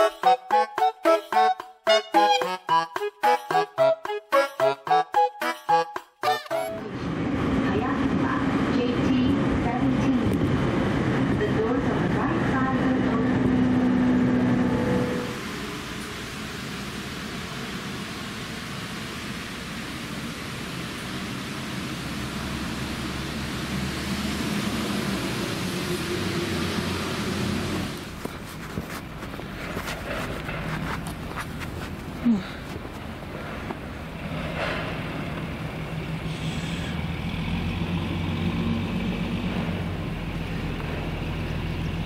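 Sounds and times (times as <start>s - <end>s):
outdoor noise: 6.1s - 42.0s
low engine hum: 6.8s - 42.0s.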